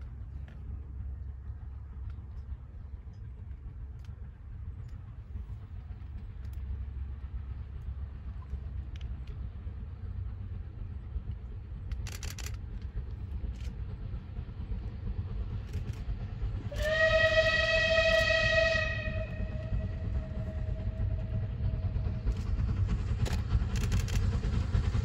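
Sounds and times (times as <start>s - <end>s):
steam locomotive low rumble: 0.0s - 25.0s
steam whistle long note: 16.7s - 21.9s.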